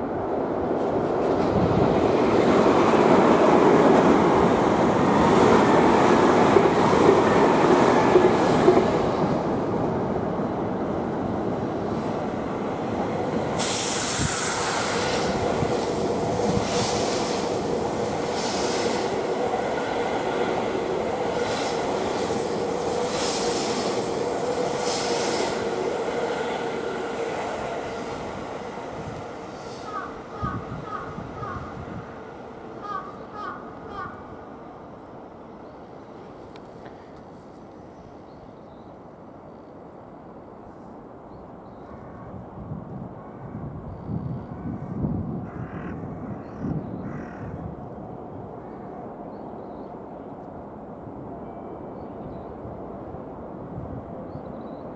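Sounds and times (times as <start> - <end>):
train wheels rumbling on rails: 0.0 - 32.2.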